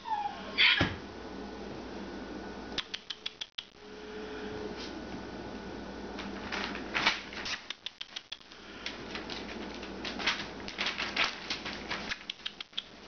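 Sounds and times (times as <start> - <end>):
puppy paws scrabbling on newspaper: 6.2 - 13.0.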